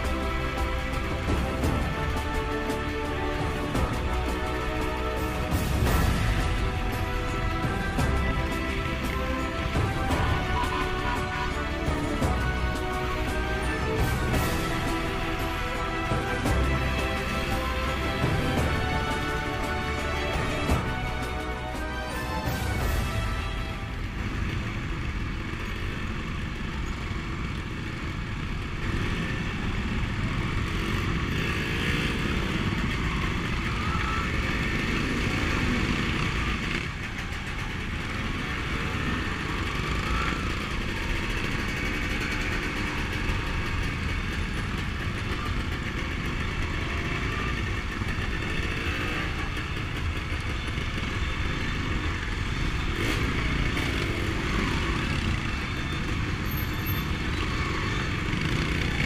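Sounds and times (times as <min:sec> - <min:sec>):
motorcycle engines nearby: 0:00.0 - 0:59.0
dirt bike engine running: 0:24.2 - 0:59.0.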